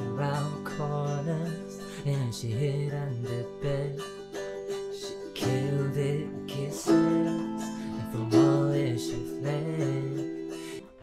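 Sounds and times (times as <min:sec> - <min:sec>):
autoharp strummed in chords: 0:00.0 - 0:11.0
low voice singing: 0:05.0 - 0:11.0.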